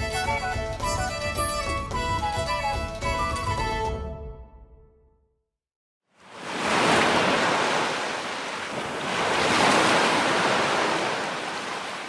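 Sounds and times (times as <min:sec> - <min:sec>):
ocean surf washing in: 0:06.2 - 0:12.0.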